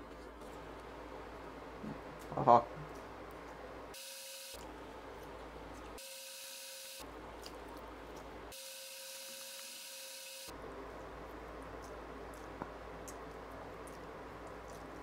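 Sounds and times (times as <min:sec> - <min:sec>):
thin steady whine: 0:00.0 - 0:11.4
low electrical hum: 0:00.0 - 0:15.0.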